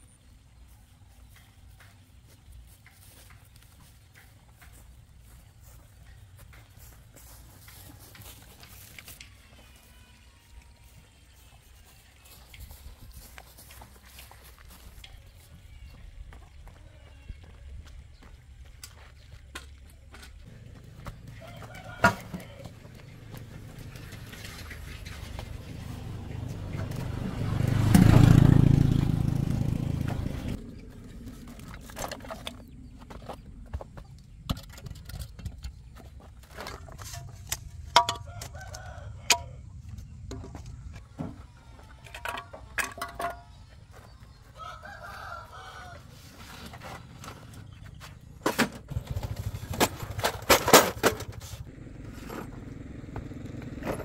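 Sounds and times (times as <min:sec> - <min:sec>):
rooster crowing: 0:21.3 - 0:22.9, 0:38.1 - 0:39.7, 0:44.5 - 0:46.3
vehicle engine passing: 0:22.8 - 0:31.7
knocks and clatter: 0:48.4 - 0:51.6.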